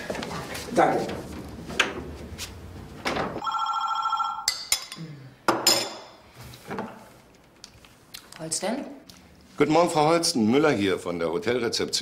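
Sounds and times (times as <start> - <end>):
electronic telephone ring: 3.4 - 4.5.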